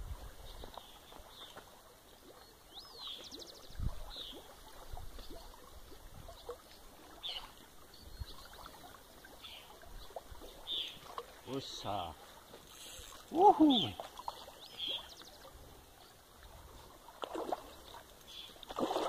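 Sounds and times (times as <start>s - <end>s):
water splashing: 0.0s - 19.0s
small birds chirping: 0.4s - 4.5s, 7.2s - 16.2s, 17.6s - 18.6s.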